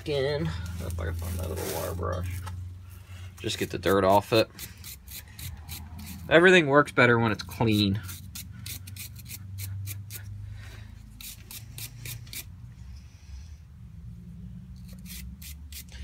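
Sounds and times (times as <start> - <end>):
wire brush scrubbing metal part: 3.4 - 6.4, 7.3 - 10.3, 11.2 - 12.5, 14.8 - 16.0.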